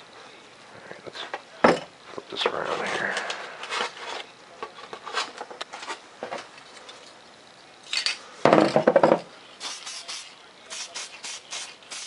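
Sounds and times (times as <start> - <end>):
spray can hiss: 9.6 - 12.0.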